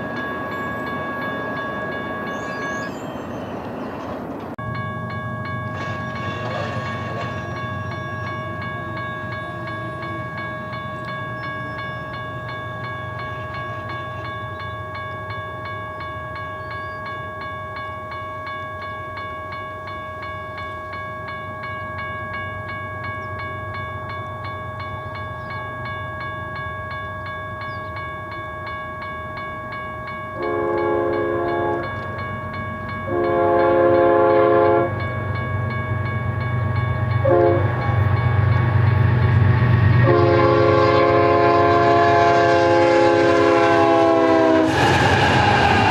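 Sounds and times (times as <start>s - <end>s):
crossing warning bell ringing: 0.0s - 45.9s
train air horn blasts: 30.4s - 32.0s, 33.1s - 35.0s, 37.2s - 37.8s, 40.0s - 45.9s
diesel locomotive rumble: 30.4s - 45.9s.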